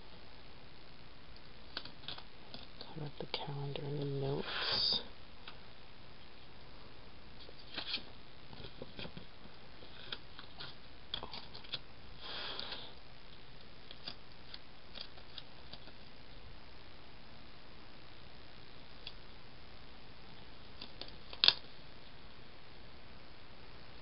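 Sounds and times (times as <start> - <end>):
paper pages ticking and tapping: 1.7 - 2.7.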